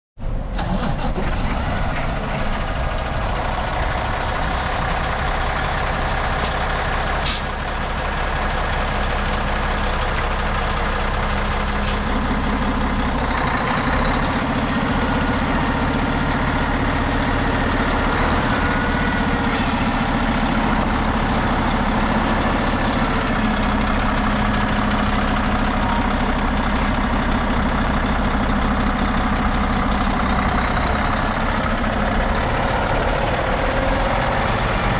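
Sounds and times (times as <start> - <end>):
diesel truck engine idling: 0.6 - 34.9
short hisses: 7.2 - 7.5.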